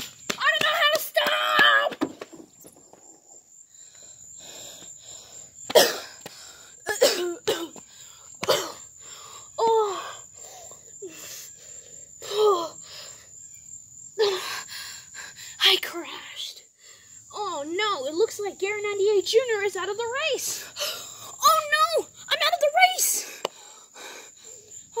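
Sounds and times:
boy coughing and wheezing: 0:05.7 - 0:06.2, 0:06.8 - 0:08.9
heavy breathing: 0:23.4 - 0:24.9.

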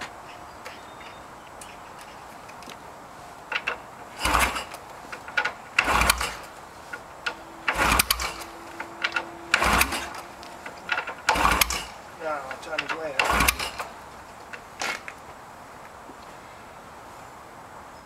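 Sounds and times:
kickstart ratchet clicking: 0:03.5 - 0:14.6
motorcycle engine kick-start bursts: 0:03.5 - 0:15.1.

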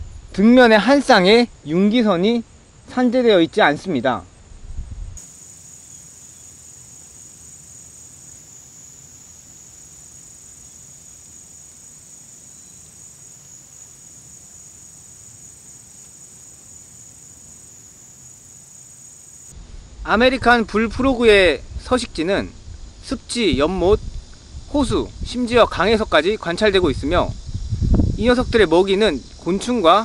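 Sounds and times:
high-pitched insect drone: 0:05.2 - 0:20.2.

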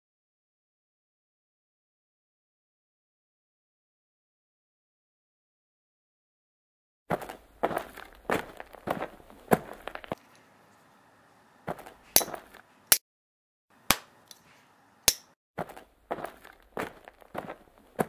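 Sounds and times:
hard sticks clashing: 0:15.1 - 0:15.3.

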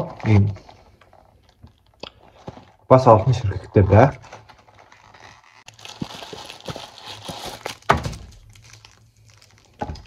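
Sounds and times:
plastic bag crinkling: 0:03.8 - 0:10.0.

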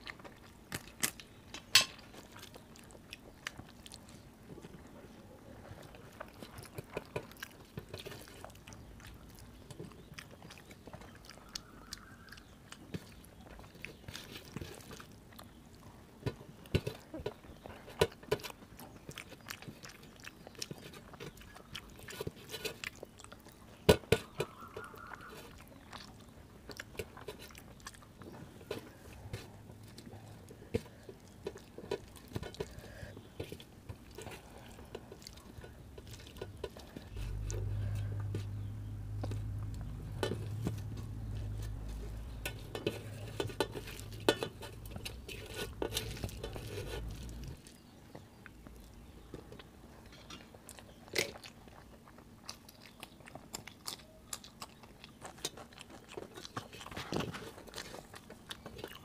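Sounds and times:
wet chewing and mouth smacks: 0:00.0 - 0:05.0, 0:05.6 - 0:59.0
fingers squishing food on steel plate: 0:06.1 - 0:51.9.

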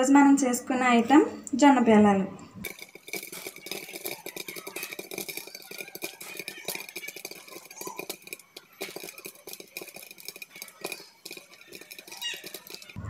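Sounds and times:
kernels popping in a pan: 0:02.6 - 0:13.0.

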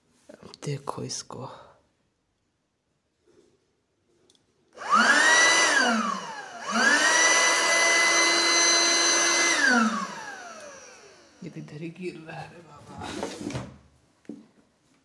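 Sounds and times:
electric air pump motor whining: 0:04.8 - 0:11.4.

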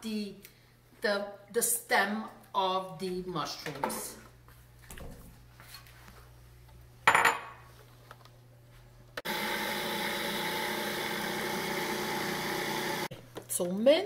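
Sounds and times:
food processor motor running: 0:09.2 - 0:13.1.

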